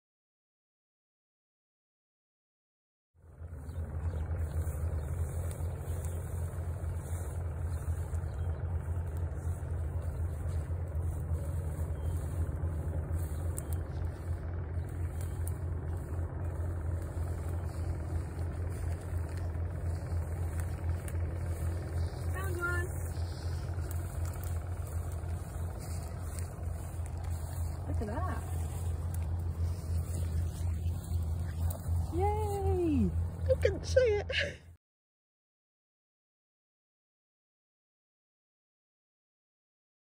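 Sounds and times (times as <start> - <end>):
steady low rumble: 3.2 - 34.8.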